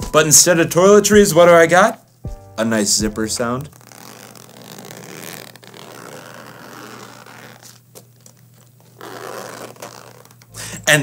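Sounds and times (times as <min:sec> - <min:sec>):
zipper rasping open: 0:03.6 - 0:10.5.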